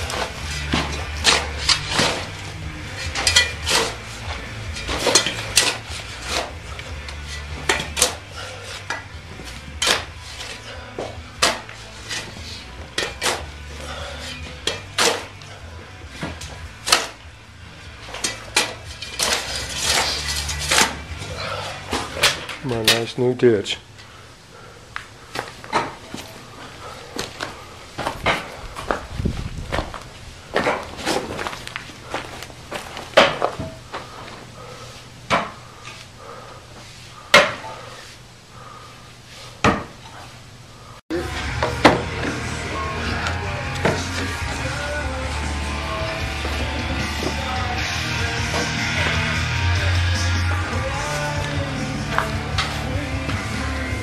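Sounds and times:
shovel scraping on stones: 0.0 - 9.0, 18.1 - 21.5
faint steady hum: 0.0 - 54.0.

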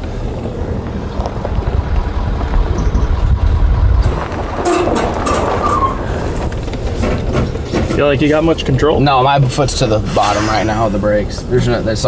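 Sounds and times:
truck and trailer rumble: 0.0 - 12.0
knocks and rattles: 0.8 - 8.8.

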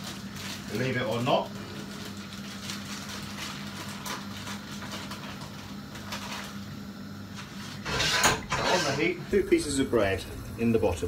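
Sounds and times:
plastic bag rustling: 0.0 - 6.6
steady low hum: 0.0 - 11.0.

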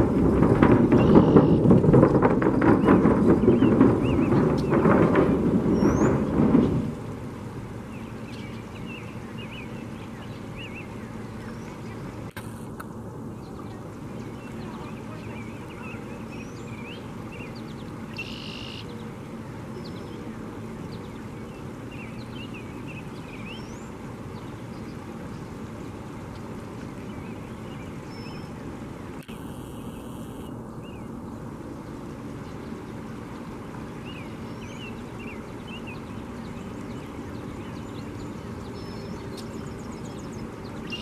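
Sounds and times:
flowing river water: 0.0 - 41.0
small birds chirping: 0.9 - 1.7, 7.8 - 12.4, 13.3 - 31.5, 32.3 - 41.0
buzzy bird call: 14.2 - 19.1, 34.1 - 41.0.

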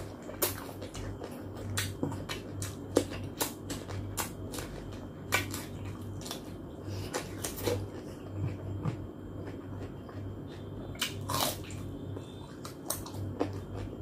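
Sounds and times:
cucumber crunching and chewing: 0.0 - 14.0.

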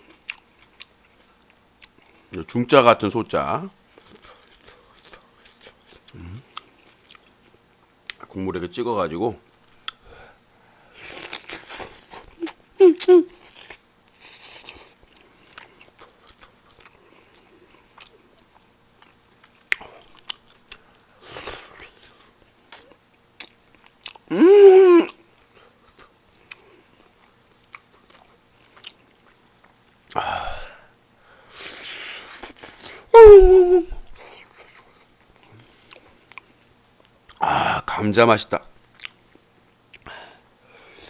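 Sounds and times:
person chewing food: 0.0 - 2.4, 3.9 - 8.3, 11.0 - 12.6, 13.3 - 24.3, 25.0 - 30.2, 34.0 - 37.4, 38.9 - 40.1
short hum vocal sounds: 6.1 - 6.5, 24.3 - 25.2, 32.7 - 34.3.

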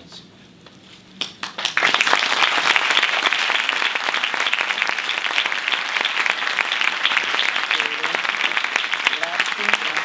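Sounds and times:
audience applauding: 1.2 - 10.0.

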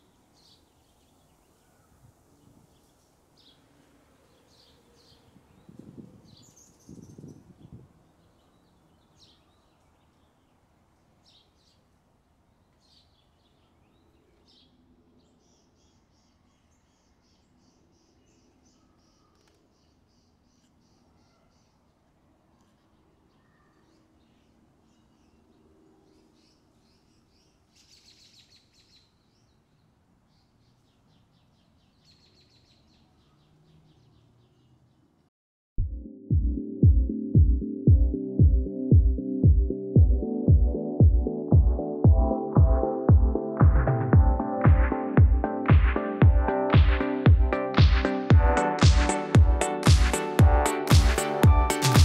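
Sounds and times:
faint bird chirps: 0.0 - 11.9, 12.6 - 35.1.

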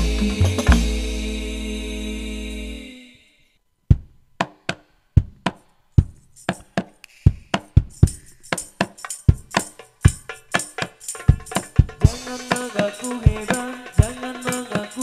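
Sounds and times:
drum strikes: 0.0 - 1.5, 3.9 - 15.0
frame drum and tambourine jingles: 6.0 - 15.0.

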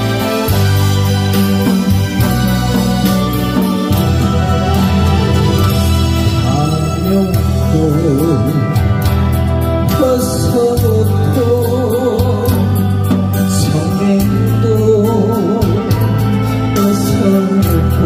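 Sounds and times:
musical accompaniment with steady beat: 0.0 - 18.0
man singing with vibrato: 4.7 - 18.0.

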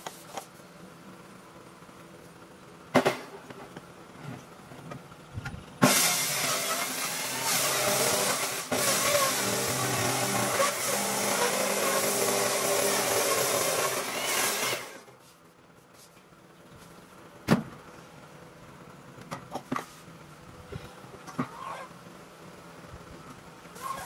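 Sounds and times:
power tool on wood: 5.8 - 15.0.

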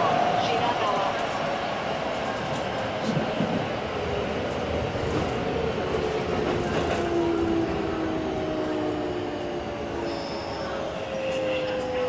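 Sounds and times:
wheel and rail rumble: 0.0 - 12.0.

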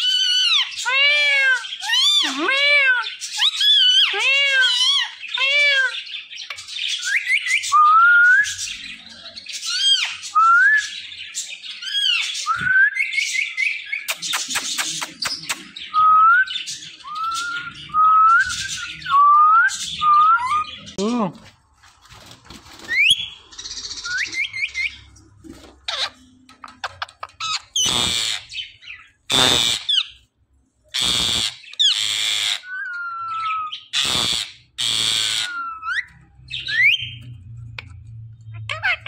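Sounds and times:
parakeets calling: 0.0 - 10.3, 22.8 - 25.2, 25.8 - 39.0.

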